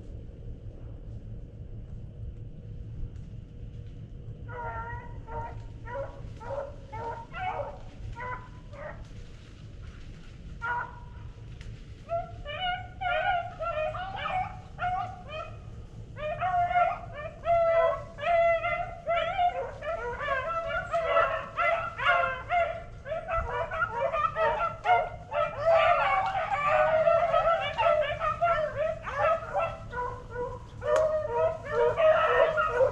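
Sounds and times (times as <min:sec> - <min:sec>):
hounds baying: 0:04.5 - 0:09.0, 0:10.6 - 0:11.3, 0:12.0 - 0:32.9.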